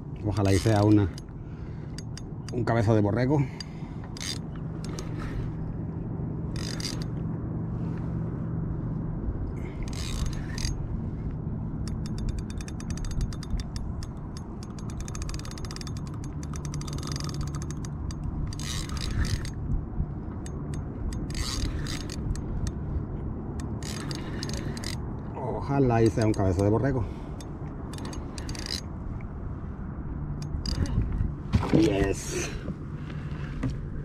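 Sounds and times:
fishing reel gears whirring: 0.4 - 2.7, 3.5 - 5.7, 6.5 - 7.2, 9.6 - 10.9, 11.8 - 19.6, 20.4 - 22.8, 23.5 - 25.2, 25.9 - 28.9, 30.4 - 31.2.

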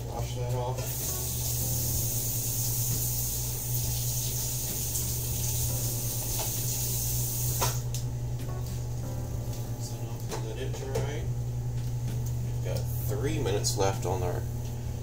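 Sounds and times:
microwave oven humming: 0.0 - 15.0
tap water running into sink: 0.8 - 7.9.

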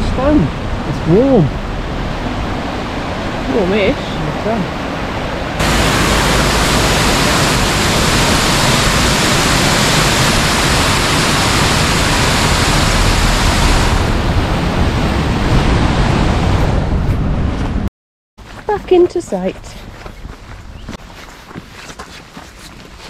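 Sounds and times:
water rushing over waterfall: 0.0 - 4.9, 5.5 - 15.8.

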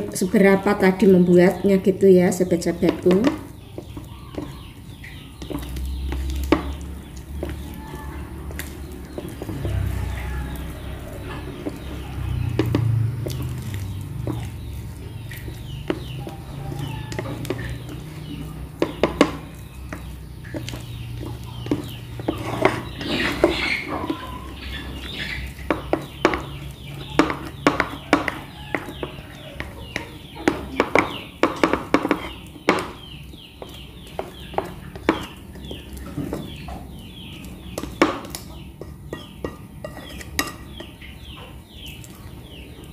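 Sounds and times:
spatula knocking and scraping glass bowl: 2.8 - 42.2
falling clucking calls: 14.2 - 38.8.

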